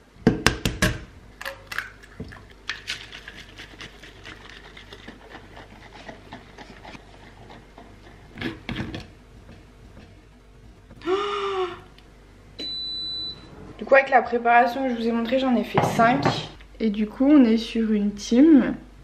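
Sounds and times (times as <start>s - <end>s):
egg cracking: 0.4s - 10.1s.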